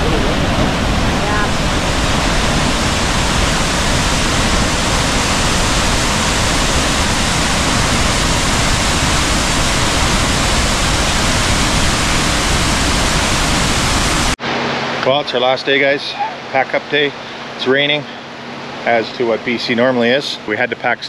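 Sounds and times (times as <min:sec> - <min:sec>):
waterfall rushing: 0:00.0 - 0:14.4.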